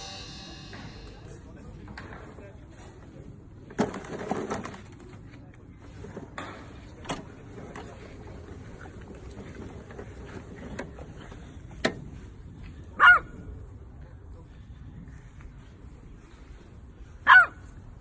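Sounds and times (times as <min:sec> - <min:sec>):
puppy barking: 0:13.0 - 0:13.3, 0:17.3 - 0:17.6.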